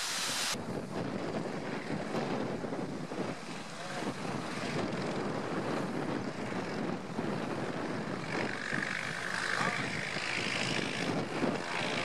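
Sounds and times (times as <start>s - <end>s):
small plane engine and propeller: 0.2s - 12.0s.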